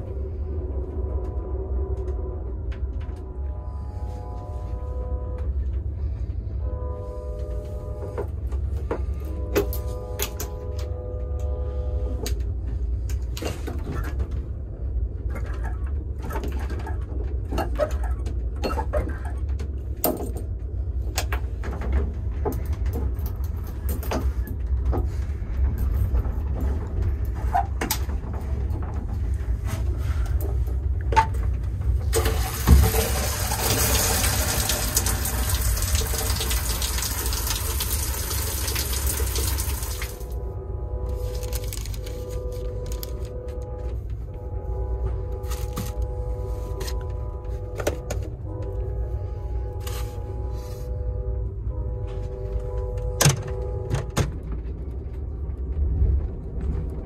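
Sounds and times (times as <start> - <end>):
train rumble: 0.0 - 57.0
shower water spraying: 32.1 - 40.4.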